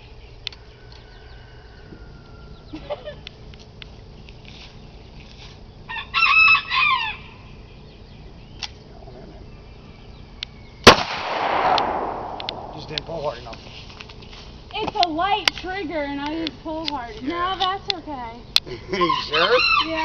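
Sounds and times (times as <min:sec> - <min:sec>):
rooster crowing: 0:00.7 - 0:03.0, 0:05.9 - 0:07.5.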